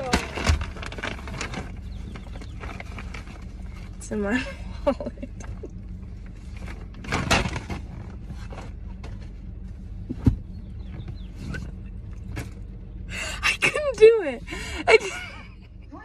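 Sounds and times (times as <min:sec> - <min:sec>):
car interior rumble: 0:00.0 - 0:16.0.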